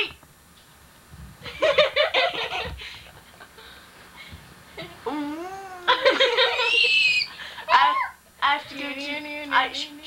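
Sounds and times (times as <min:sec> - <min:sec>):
voice wavering in pitch: 0:04.8 - 0:06.0
child giggling: 0:04.8 - 0:08.1.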